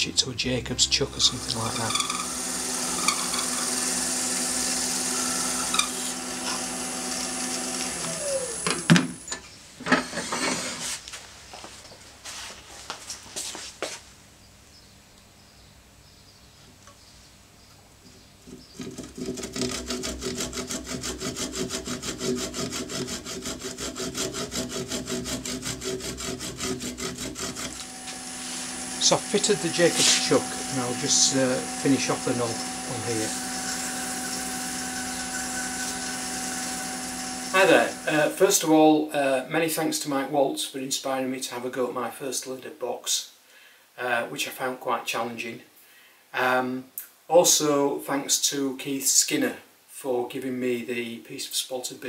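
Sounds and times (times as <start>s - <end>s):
steady hum: 0.0s - 9.4s, 27.6s - 38.4s
wood lathe running: 0.0s - 9.4s, 18.8s - 38.4s
hand saw cutting wood: 1.1s - 9.3s, 18.7s - 38.4s.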